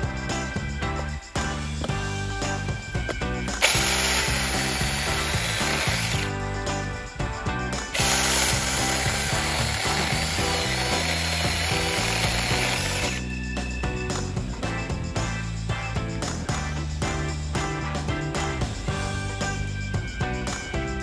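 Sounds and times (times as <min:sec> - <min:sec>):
mini chainsaw cutting log: 0:03.5 - 0:06.3, 0:07.9 - 0:13.2.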